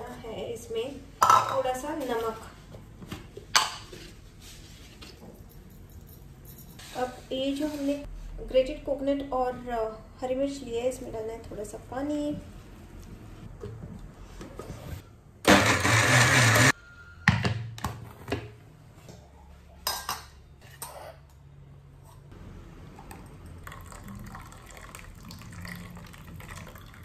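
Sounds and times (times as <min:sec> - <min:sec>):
mixer grinder running: 0:15.4 - 0:16.8
liquid trickling into bowl: 0:23.0 - 0:27.0.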